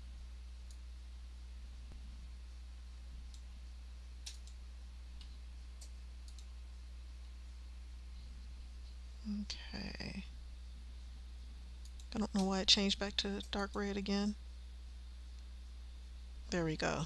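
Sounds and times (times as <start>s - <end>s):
low electrical hum: 0.0s - 17.0s
faint computer mouse clicks: 4.2s - 4.6s, 5.2s - 6.5s.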